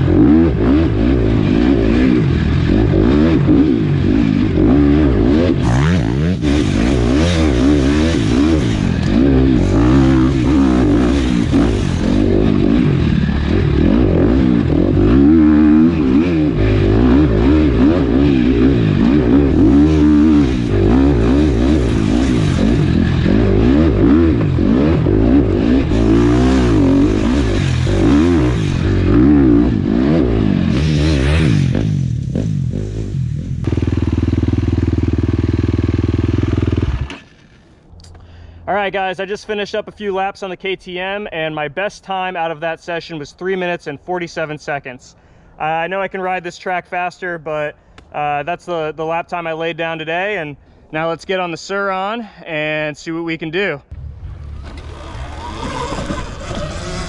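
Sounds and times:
motocross engine revving: 0:00.0 - 0:37.8, 0:53.9 - 0:57.0.

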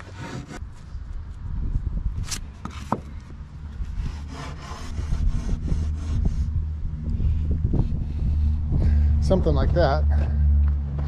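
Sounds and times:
boards scraping against boards: 0:00.0 - 0:00.6, 0:02.3 - 0:06.5
low rumble: 0:03.4 - 0:11.0.

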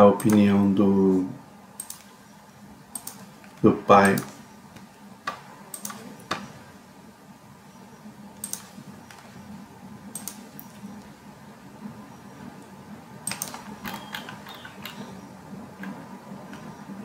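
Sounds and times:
faint low hum: 0:00.0 - 0:17.0
mouse and keyboard clicks: 0:01.8 - 0:02.1, 0:04.0 - 0:06.5, 0:08.4 - 0:09.3, 0:10.1 - 0:10.8, 0:13.2 - 0:15.1.

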